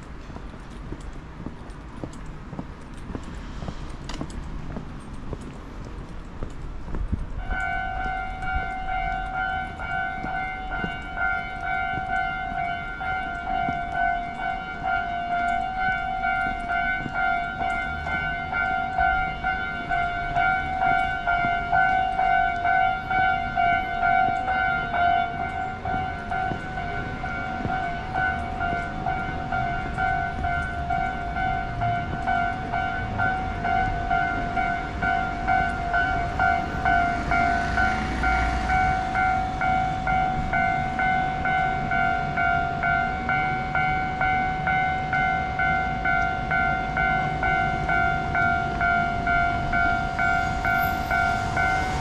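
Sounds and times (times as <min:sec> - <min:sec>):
faint footsteps: 0:00.0 - 0:42.4
street noise: 0:00.0 - 0:52.0
level crossing alarm ringing: 0:07.4 - 0:52.0.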